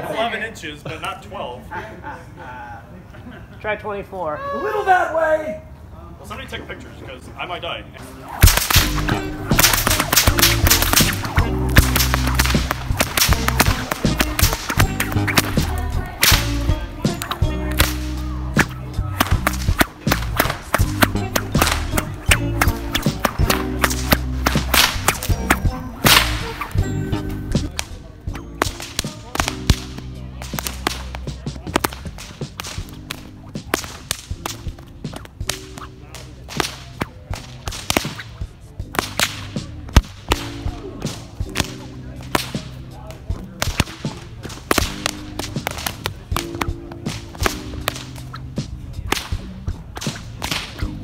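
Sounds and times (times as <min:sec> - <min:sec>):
background music: 0:08.0 - 0:51.0
bullwhips cracking: 0:08.2 - 0:42.8, 0:43.4 - 0:51.0.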